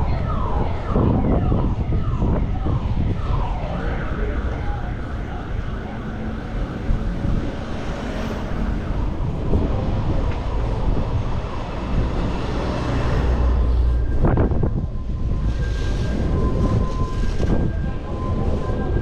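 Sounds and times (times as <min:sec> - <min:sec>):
vehicle engines passing: 0:00.0 - 0:19.0.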